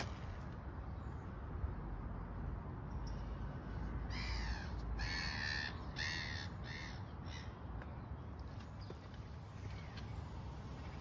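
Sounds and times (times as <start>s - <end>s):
crow cawing: 4.1s - 7.5s.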